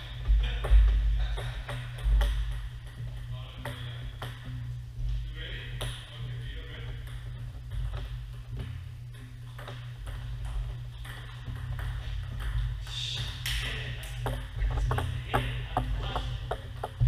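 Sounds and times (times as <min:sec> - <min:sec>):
ping pong ball bouncing: 0:00.3 - 0:04.6, 0:05.8 - 0:06.1, 0:06.8 - 0:17.0
ping pong ball clicking off paddles: 0:00.4 - 0:04.5, 0:09.1 - 0:17.0.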